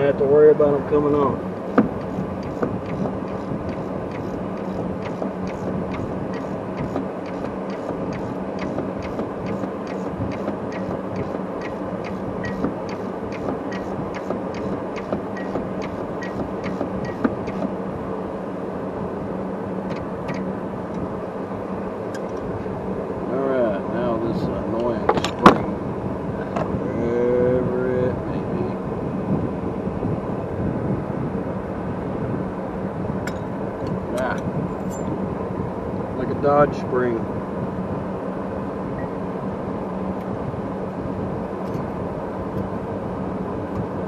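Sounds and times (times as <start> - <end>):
steady low hum: 0.0 - 44.0
ratchet wrench clicking: 2.0 - 17.7.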